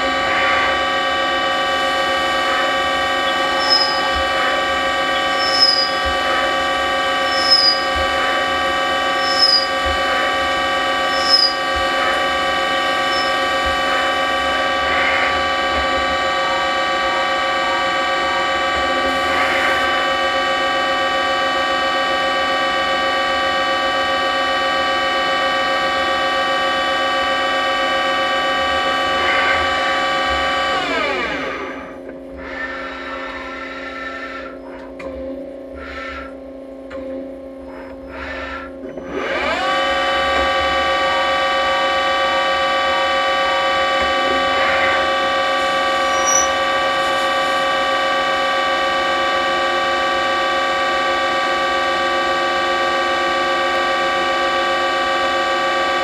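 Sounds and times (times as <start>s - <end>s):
lathe spindle whine: 0.0s - 56.0s
short high chirps: 3.6s - 4.2s, 5.2s - 6.0s, 7.3s - 7.9s, 9.2s - 9.8s, 11.1s - 11.6s, 13.1s - 13.4s, 46.1s - 46.6s.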